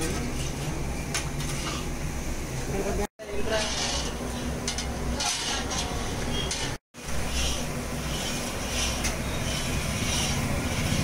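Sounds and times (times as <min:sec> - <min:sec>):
spatula scraping a pan: 0:03.3 - 0:11.0
syrup boiling and frothing: 0:07.0 - 0:11.0.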